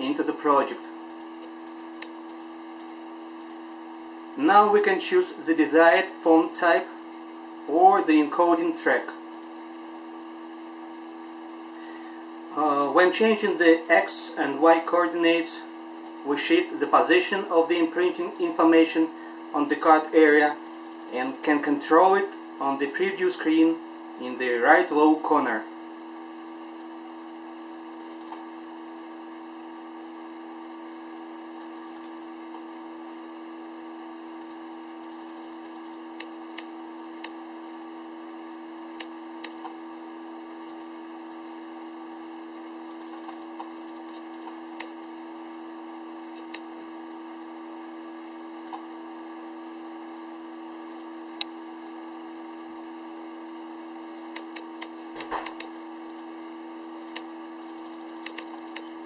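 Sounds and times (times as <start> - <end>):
steady hum: 0.0 - 59.0
keyboard and mouse clicks: 28.0 - 28.5, 31.6 - 32.2, 39.0 - 39.8, 42.9 - 45.1, 54.2 - 56.3, 57.0 - 59.0.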